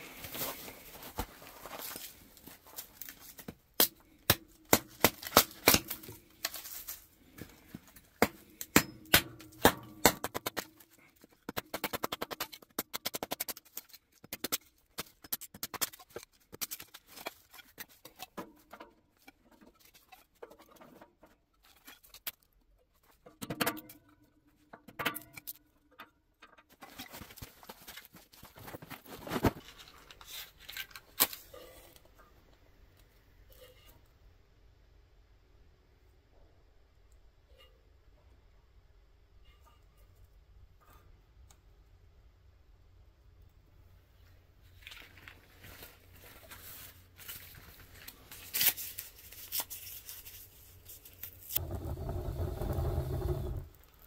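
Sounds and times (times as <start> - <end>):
hatchet chopping firewood: 3.8 - 6.2, 8.2 - 10.8.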